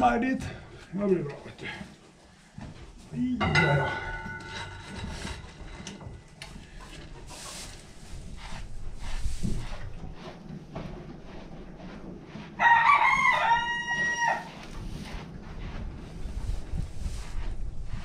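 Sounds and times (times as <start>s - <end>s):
rustling of horse grooming: 0.0s - 3.3s, 4.2s - 18.0s
rooster crowing: 12.6s - 14.5s.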